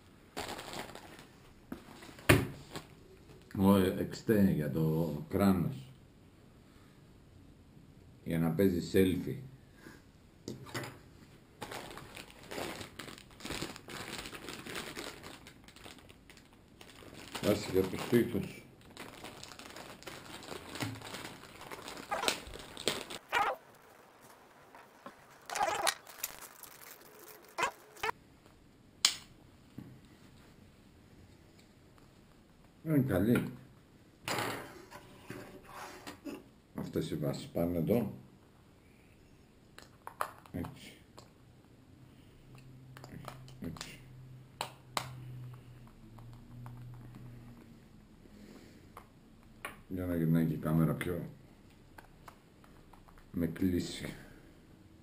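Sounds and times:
plastic bags crinkling: 0.3 - 1.4, 11.6 - 28.2
handling noise: 20.6 - 28.1.

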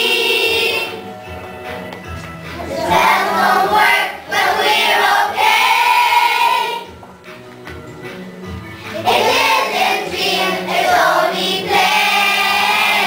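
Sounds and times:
children singing in unison: 0.0 - 1.0, 2.6 - 6.9, 8.9 - 13.0.

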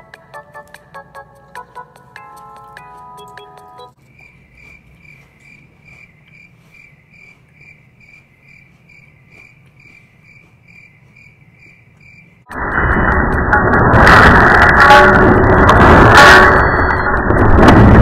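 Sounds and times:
ringtone music phrase: 0.0 - 4.0
cricket chirping: 4.0 - 12.5
low hum: 11.6 - 18.0.

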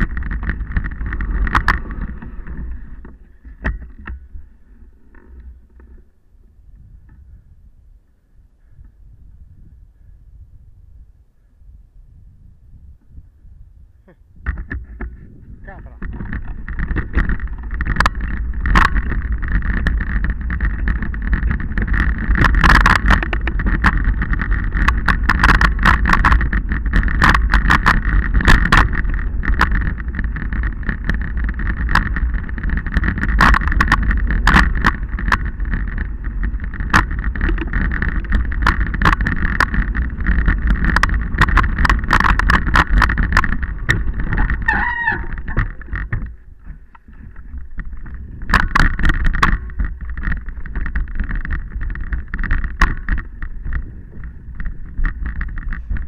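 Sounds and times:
bike rattling over rocks: 0.0 - 6.2, 14.4 - 56.0
wind buffeting microphone: 0.0 - 56.0
short wavering squeal: 44.4 - 45.6.

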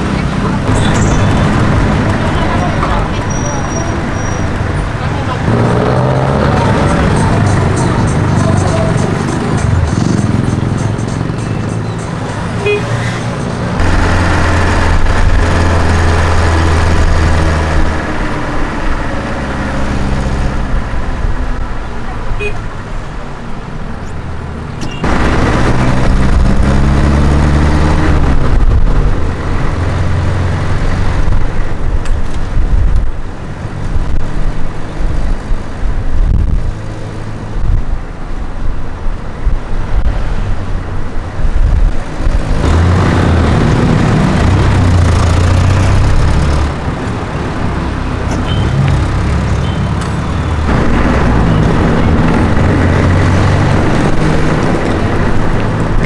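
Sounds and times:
vehicles passing: 0.0 - 56.0
engine revving: 4.9 - 11.4, 13.2 - 20.9, 25.0 - 31.3, 42.2 - 56.0.

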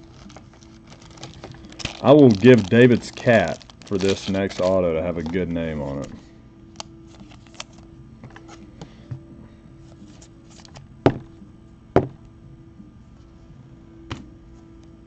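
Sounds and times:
cards shuffling: 0.0 - 6.2, 6.8 - 8.7, 9.9 - 10.9.

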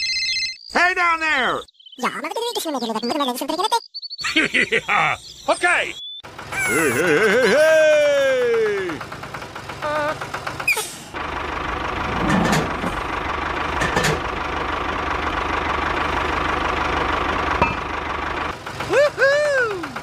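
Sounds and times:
tractor engine idling: 6.2 - 20.0
drawn-out voice falling in pitch: 6.5 - 9.0, 9.8 - 10.2, 18.9 - 20.0.

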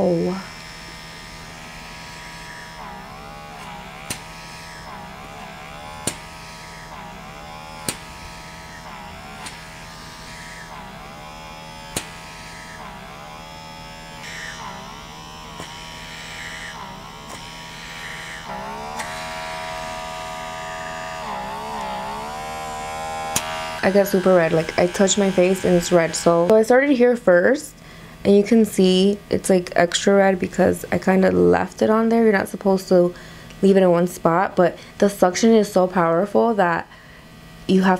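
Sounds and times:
suction device motor whine: 0.0 - 27.5
sharp clicks: 6.0 - 6.3, 11.8 - 12.7, 23.3 - 23.9.

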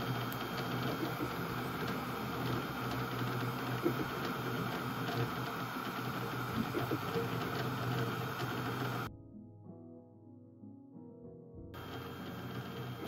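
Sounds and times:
low motor hum: 0.0 - 9.1, 11.8 - 13.0
printer fans whirring: 0.0 - 9.1, 11.8 - 13.0.

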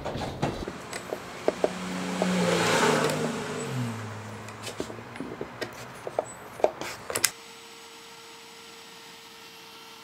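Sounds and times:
router winding down: 0.7 - 5.8.

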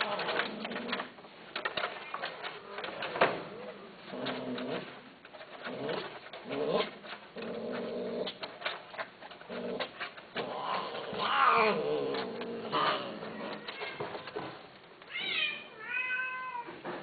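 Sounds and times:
cat meowing: 12.9 - 14.1, 15.1 - 16.8.

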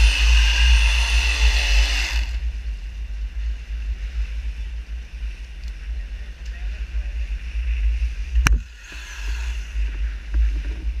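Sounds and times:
boat engine rumble: 0.0 - 11.0
loud hiss: 8.6 - 10.2.

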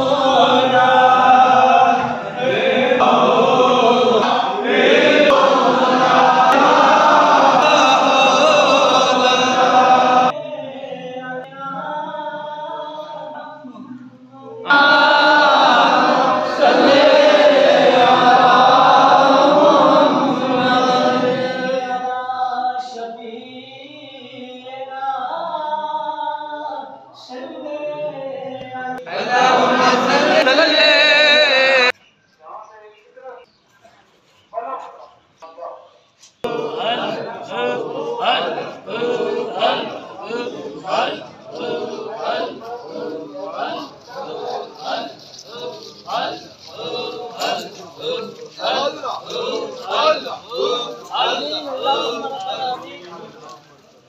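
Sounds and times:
men chanting together: 0.0 - 10.4, 14.6 - 23.0, 29.0 - 31.9, 36.4 - 53.6.

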